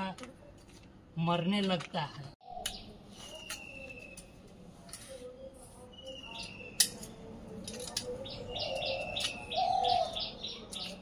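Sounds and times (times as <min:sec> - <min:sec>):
birds chirping: 0:02.2 - 0:04.5, 0:05.2 - 0:11.0.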